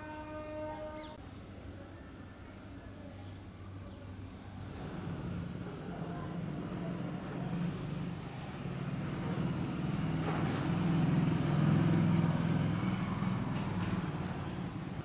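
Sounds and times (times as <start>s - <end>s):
vehicle engine humming: 4.2s - 15.0s.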